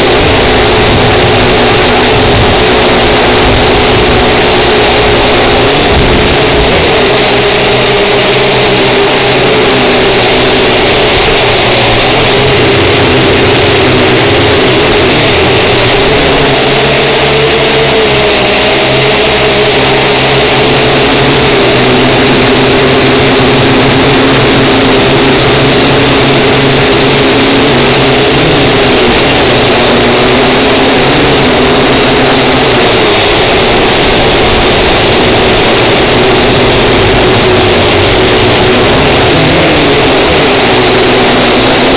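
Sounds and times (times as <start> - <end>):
drone propellers buzzing: 0.0 - 41.9.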